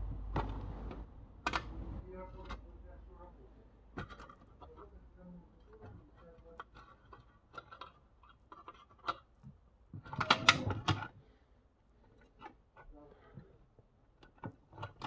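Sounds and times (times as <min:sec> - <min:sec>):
small metal hardware clicking: 0:10.1 - 0:11.1.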